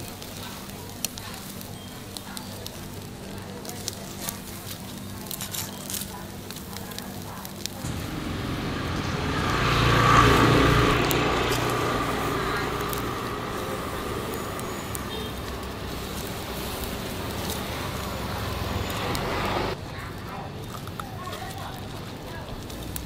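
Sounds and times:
vehicle passing by: 0:07.8 - 0:19.8.

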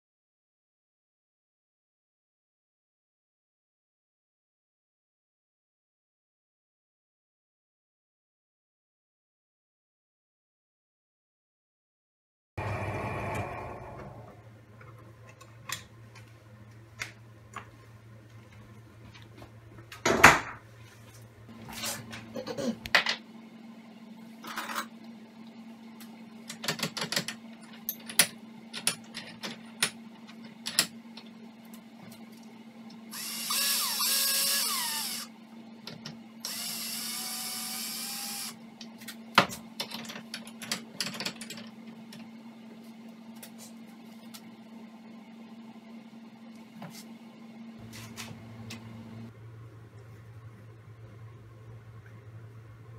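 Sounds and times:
low steady hum: 0:12.6 - 0:52.9
power drill running: 0:33.1 - 0:35.3, 0:36.4 - 0:38.6.

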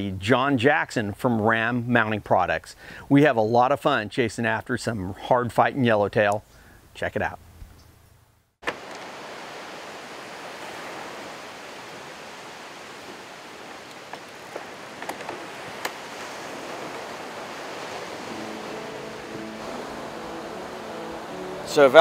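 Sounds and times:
ocean surf: 0:08.6 - 0:22.0.

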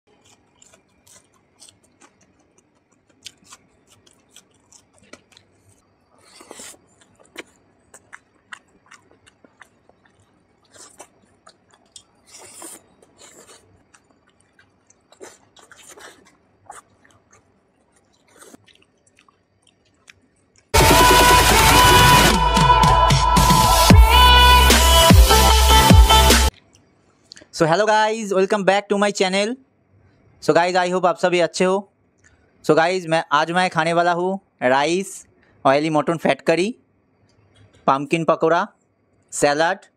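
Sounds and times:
man chewing and mouth sounds: 0:00.1 - 0:22.2, 0:24.8 - 0:27.5, 0:32.0 - 0:32.6, 0:37.0 - 0:37.9
loud electronic music: 0:20.8 - 0:26.5.

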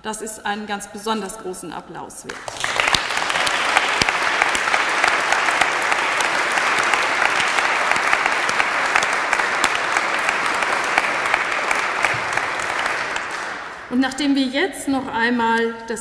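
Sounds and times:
audience applauding: 0:02.4 - 0:13.9.

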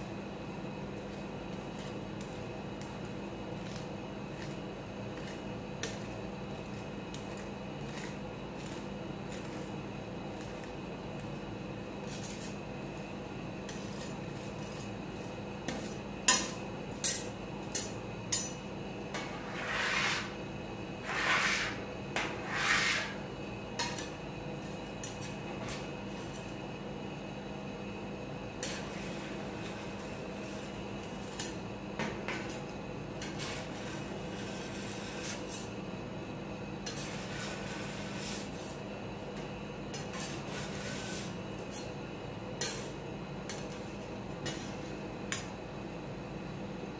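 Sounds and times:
steady low hum: 0:00.0 - 0:46.9
spatula scraping metal plate: 0:19.2 - 0:20.4, 0:21.0 - 0:23.2, 0:36.8 - 0:38.8, 0:39.9 - 0:41.9.

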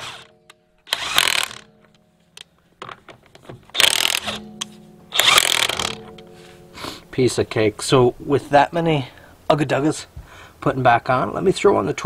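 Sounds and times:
impact wrench hammering: 0:00.9 - 0:01.7, 0:03.7 - 0:04.5, 0:05.2 - 0:06.1.

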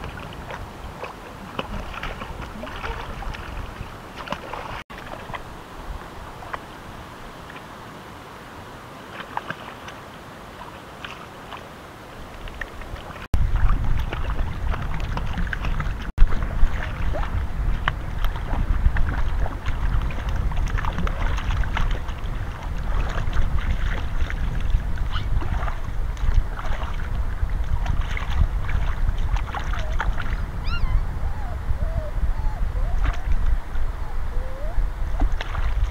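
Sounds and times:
wind buffeting the microphone: 0:00.0 - 0:07.8, 0:12.2 - 0:35.9
water splashing and sloshing: 0:00.0 - 0:35.9.

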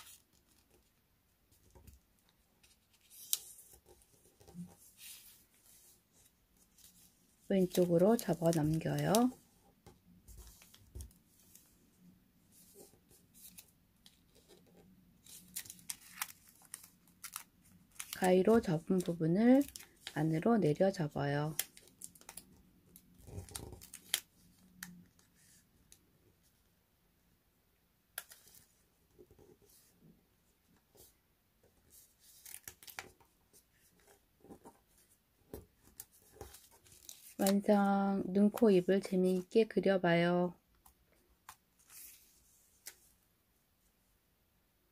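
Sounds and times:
paper rustling and crinkling: 0:00.0 - 0:09.5, 0:10.2 - 0:11.8, 0:12.5 - 0:20.2, 0:21.6 - 0:25.6, 0:31.8 - 0:37.7, 0:41.4 - 0:43.2.

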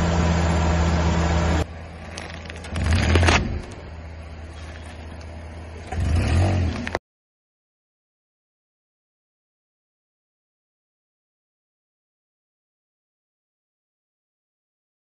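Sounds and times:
car moving: 0:00.0 - 0:07.0
vehicle rumble: 0:00.0 - 0:07.0.

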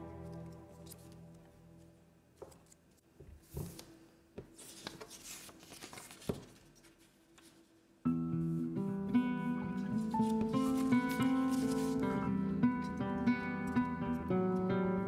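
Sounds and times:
background music: 0:00.0 - 0:02.2, 0:08.1 - 0:15.0
paper crinkles and taps: 0:02.4 - 0:07.6
paper rustling and folding: 0:02.4 - 0:07.9, 0:09.8 - 0:12.3.

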